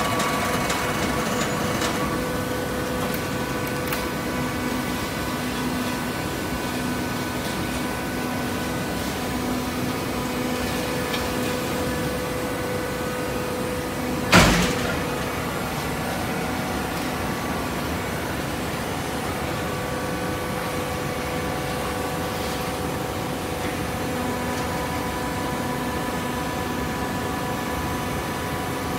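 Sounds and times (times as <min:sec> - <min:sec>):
baler machine humming: 0:00.0 - 0:27.2
sharp bang: 0:14.3 - 0:15.2.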